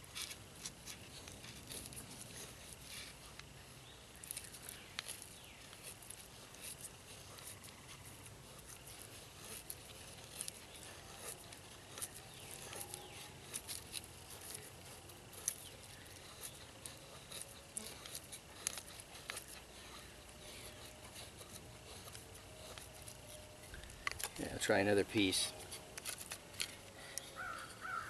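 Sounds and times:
knife shaving wood: 0.0 - 28.0.

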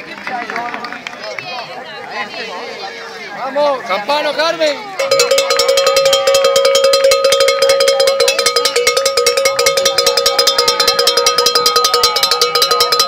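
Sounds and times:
cowbell clanging rapidly: 5.0 - 13.0.

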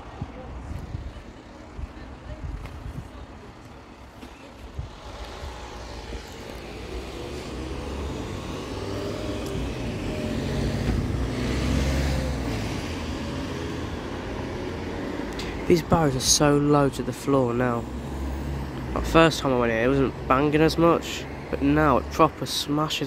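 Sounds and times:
low rumble of tyres: 0.0 - 20.8
vehicle engine passing: 4.9 - 22.3.

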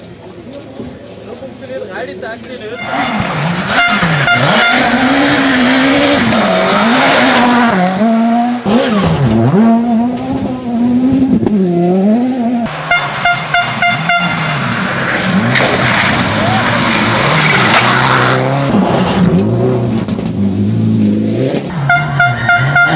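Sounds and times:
rally car engine revving: 2.8 - 22.9
sharp cracks: 15.0 - 20.4.

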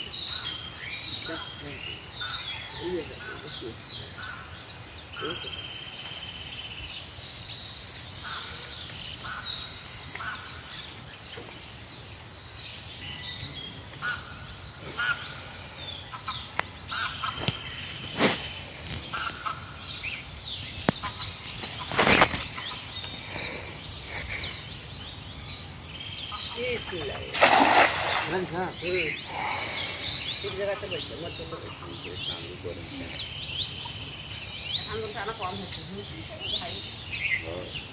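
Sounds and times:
birds calling and chirping: 0.0 - 37.9
loud crackling noises: 21.6 - 22.6.

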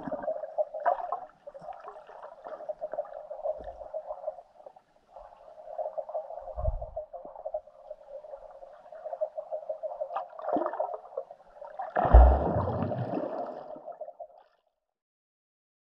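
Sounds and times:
underwater gurgling rush: 11.8 - 14.0
surge of water: 11.9 - 13.7
low underwater thumps: 12.0 - 13.2.

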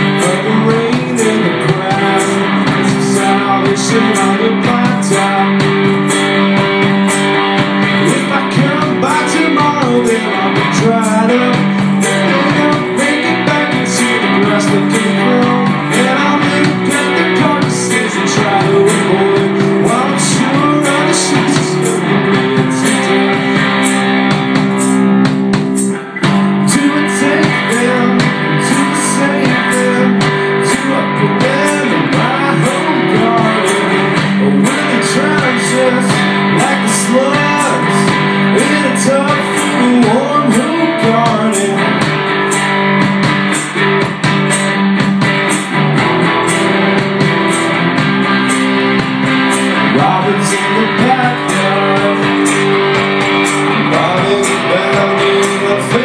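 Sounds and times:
man singing: 0.0 - 6.8, 7.8 - 24.6, 26.2 - 42.4, 49.8 - 56.0
bass guitar struck with drumstick: 0.0 - 56.0.

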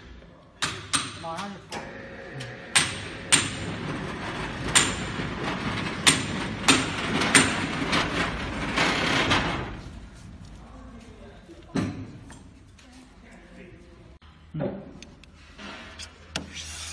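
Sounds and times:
worktable rolling rumble: 3.0 - 10.5.

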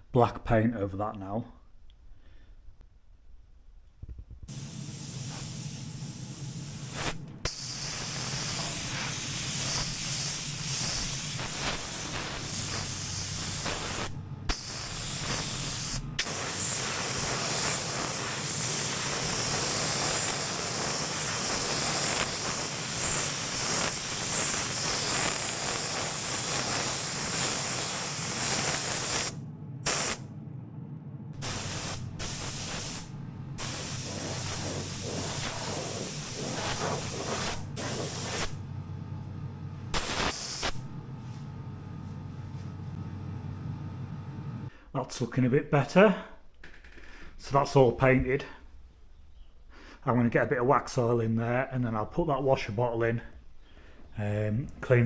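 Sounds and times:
paint spray gun hissing: 4.5 - 30.2, 31.4 - 38.6, 39.9 - 40.9.

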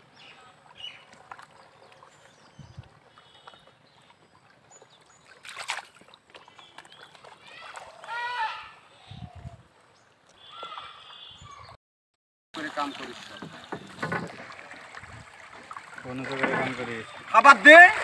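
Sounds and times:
splash in pond water: 0.0 - 8.9, 12.6 - 18.0
faint outdoor background: 0.0 - 11.8.

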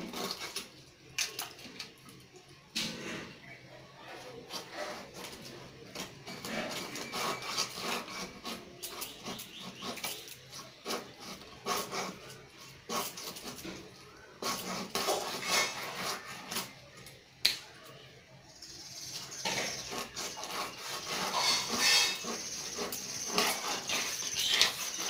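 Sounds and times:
knife scraping fish scales: 0.0 - 0.8, 4.1 - 17.1, 19.2 - 25.0.

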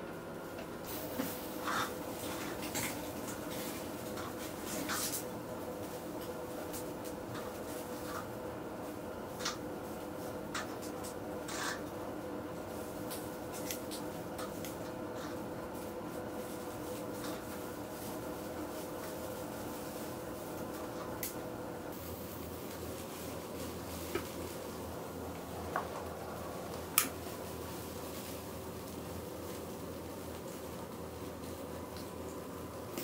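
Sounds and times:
crackling coals: 0.0 - 33.0
steady low hum: 0.0 - 33.0
meat sizzling on a grill: 0.9 - 4.2, 21.9 - 24.7.

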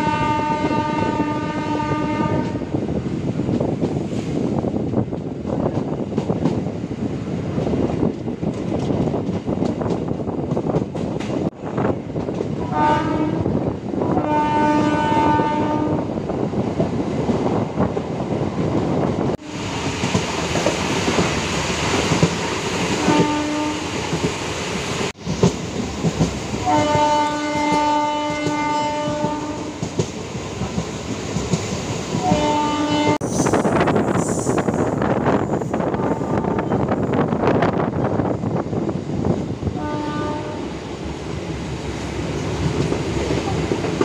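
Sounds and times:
train horn blasts: 0.0 - 2.8, 12.6 - 16.1, 22.9 - 24.0, 26.6 - 29.9, 32.2 - 33.3, 39.8 - 40.8
train running on rails: 0.0 - 44.0.

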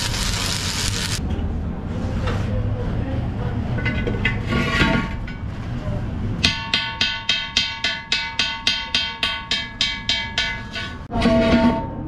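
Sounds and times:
rapid ringing metallic strikes: 6.4 - 11.1.

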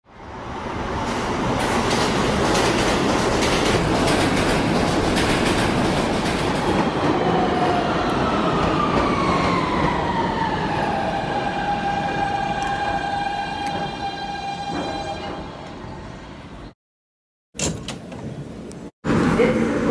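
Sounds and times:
train wheels clattering on rails: 1.1 - 7.4.

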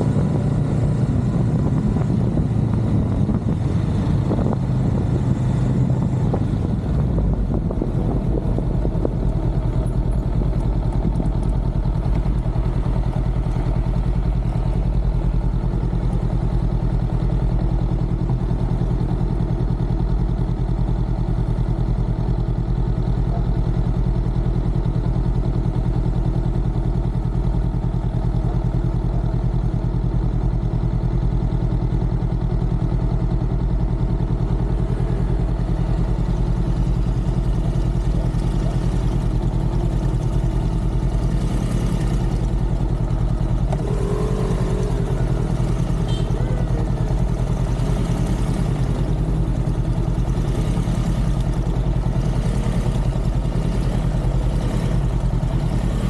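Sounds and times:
motorcycle engine idling: 0.0 - 56.0.

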